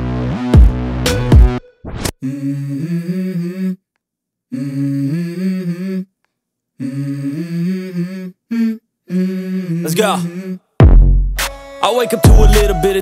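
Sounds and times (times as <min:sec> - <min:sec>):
hummed vocal melody: 0:02.2 - 0:03.9, 0:04.5 - 0:06.2, 0:06.8 - 0:10.8, 0:11.8 - 0:13.0.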